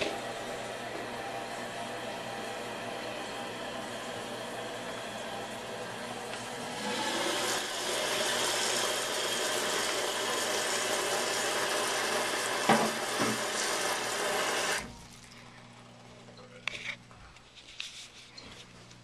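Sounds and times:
toilet tank refilling hiss: 6.6 - 14.9.

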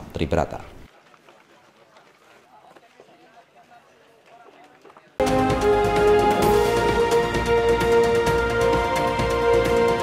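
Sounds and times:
synth chords over a beat: 5.2 - 10.0.

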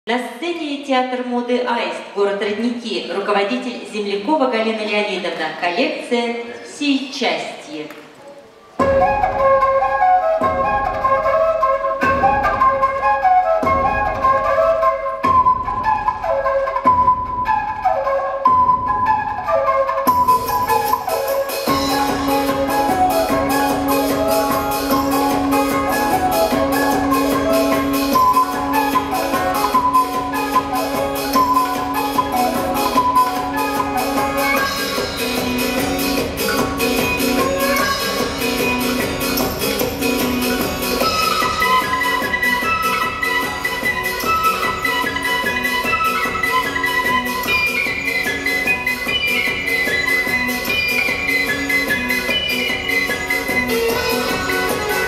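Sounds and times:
flute melody: 8.8 - 55.0
music with quick steady beat: 20.1 - 55.0.

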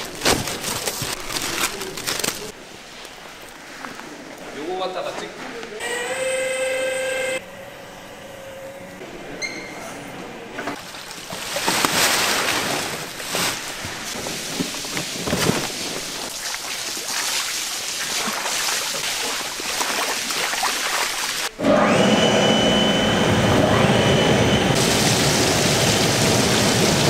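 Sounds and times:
steady machine tone: 21.8 - 24.8
loud rushing hissing noise: 24.7 - 27.0.

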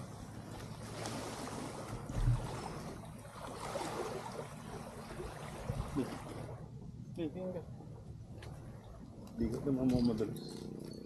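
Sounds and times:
sea waves: 0.0 - 9.3
low steady hum: 0.0 - 11.0.

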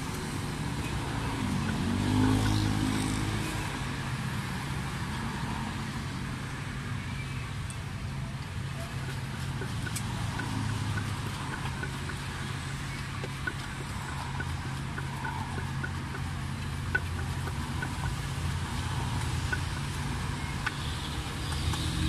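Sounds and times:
street traffic: 0.0 - 22.0
vehicle engine humming: 0.0 - 22.0
pestle pounding in mortar: 9.0 - 22.0.

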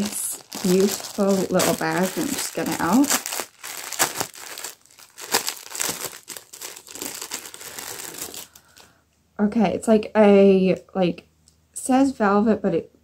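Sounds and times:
plastic packaging crinkling: 0.0 - 8.9.

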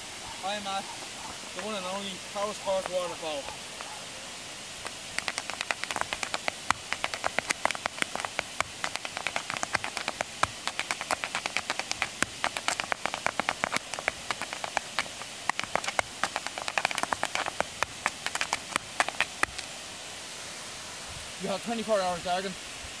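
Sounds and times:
waterfall rushing: 0.0 - 23.0
dance shoes tapping on tarmac: 4.8 - 19.7.

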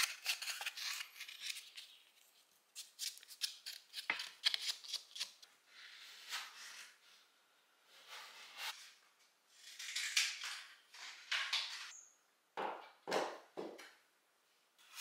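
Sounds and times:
plastering knife scraping plaster: 7.9 - 10.4.

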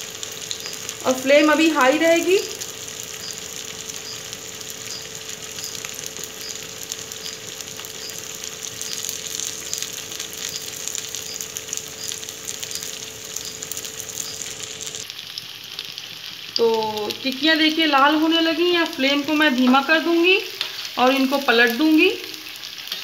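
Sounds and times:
patties deep-frying in oil: 0.0 - 23.0.

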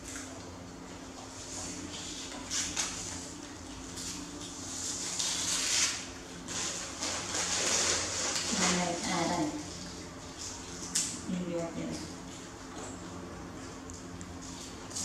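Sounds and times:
scratching and rustling: 4.0 - 9.2.

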